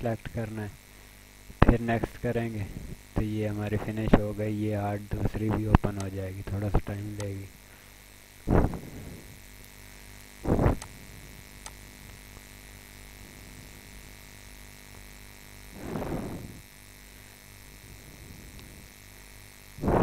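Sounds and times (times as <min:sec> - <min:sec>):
faint steady hum: 0:00.0 - 0:20.0
short rushes of noise: 0:15.8 - 0:16.6.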